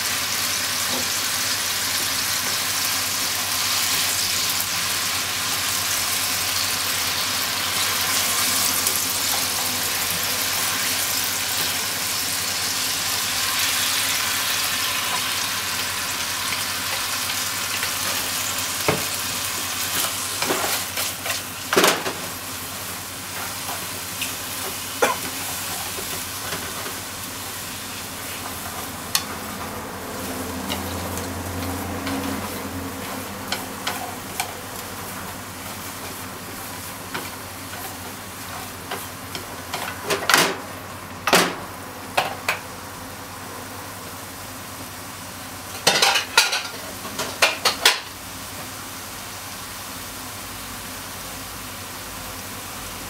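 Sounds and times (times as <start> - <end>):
oil sizzling in a frying pan: 0.0 - 53.0.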